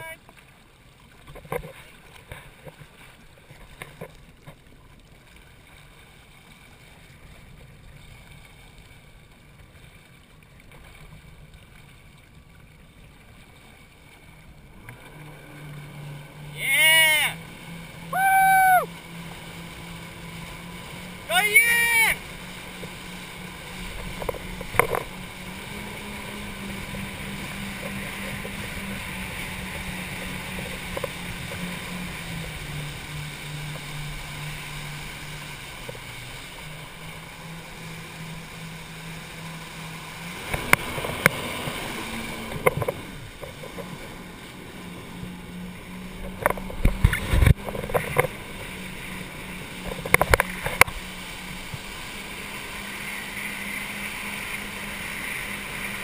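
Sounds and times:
jet ski engine running: 0.0 - 56.0
water rushing: 0.0 - 56.0
hull thumping on water: 18.8 - 52.9.

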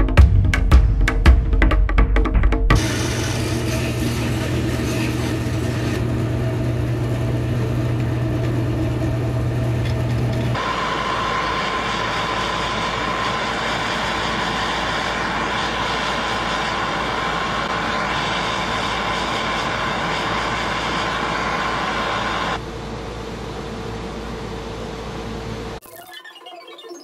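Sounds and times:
gas torch hissing: 2.8 - 22.6.

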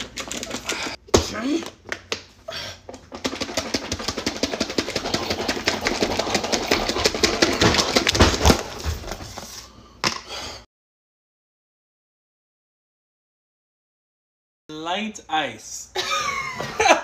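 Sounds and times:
salad rattling in plastic container: 3.1 - 8.2.

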